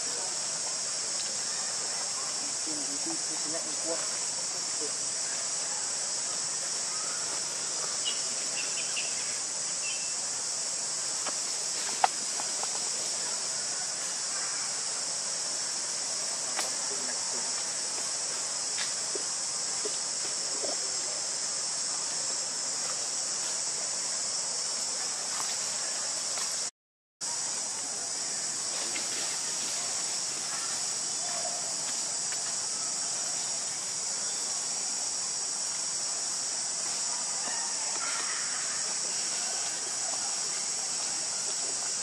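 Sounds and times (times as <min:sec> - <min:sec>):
insect chorus drone: 0:00.0 - 0:42.0
faint chirps: 0:04.8 - 0:10.3.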